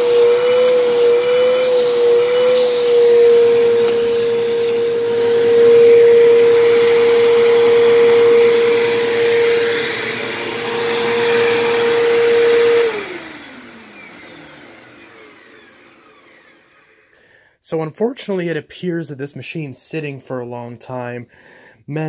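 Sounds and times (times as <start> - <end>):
vacuum cleaner motor whine: 0.0 - 17.2.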